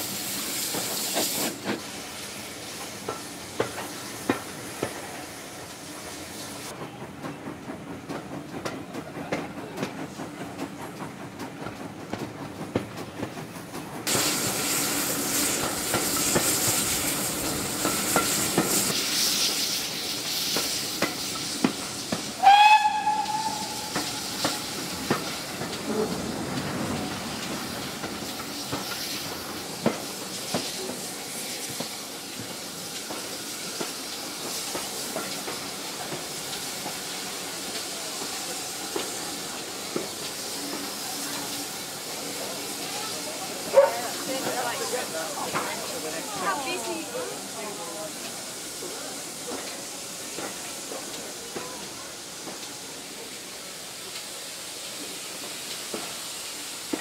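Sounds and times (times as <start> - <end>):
steam train hissing: 0.0 - 57.0
train wheels clicking: 0.0 - 57.0
steam whistle blast: 22.4 - 24.4.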